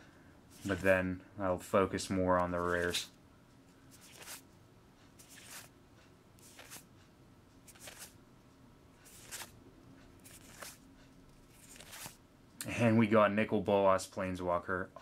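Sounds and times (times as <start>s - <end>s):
paper cards swishing: 0.5s - 1.0s, 2.4s - 3.1s, 3.9s - 4.4s, 5.2s - 5.7s, 6.4s - 6.9s, 7.7s - 8.2s, 9.0s - 9.5s, 10.2s - 10.8s, 11.4s - 12.2s.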